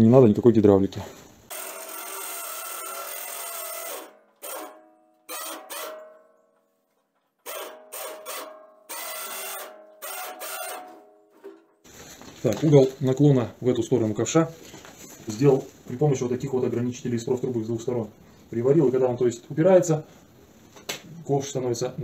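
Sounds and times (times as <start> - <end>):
electric winch motor whine: 1.5 - 6.2, 7.4 - 11.1.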